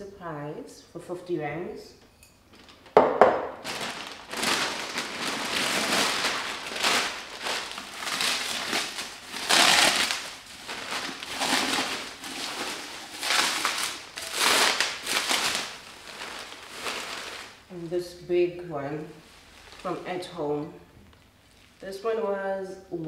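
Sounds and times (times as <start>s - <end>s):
bubble wrap crinkling: 2.5s - 17.7s, 19.2s - 20.3s.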